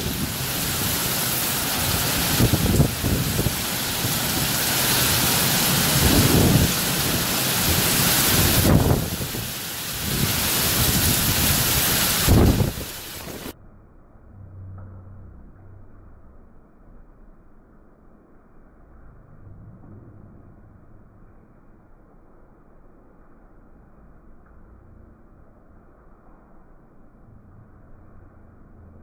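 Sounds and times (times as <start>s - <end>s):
rain hissing on leaves: 0.0s - 13.6s
thunder rumbles: 0.0s - 13.6s.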